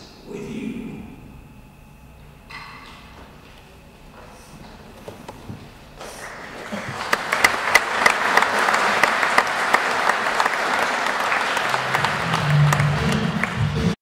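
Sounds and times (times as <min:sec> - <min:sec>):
low hum: 0:00.0 - 0:10.1
audience applauding: 0:06.0 - 0:14.0.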